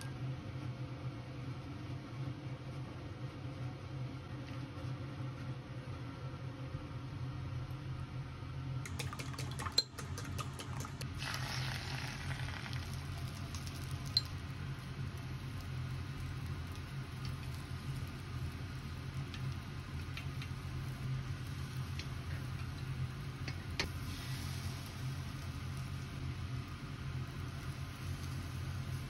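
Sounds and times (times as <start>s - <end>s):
egg sizzling in a pan: 10.4s - 29.0s.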